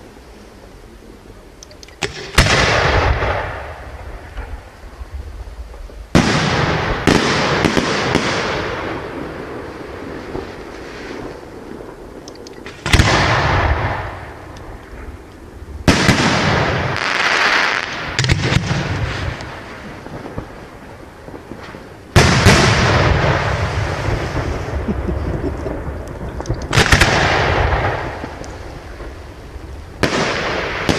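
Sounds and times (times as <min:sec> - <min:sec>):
hissing crackling firework tail: 0:00.0 - 0:30.9
firework shells bursting: 0:01.9 - 0:04.7, 0:06.1 - 0:29.3.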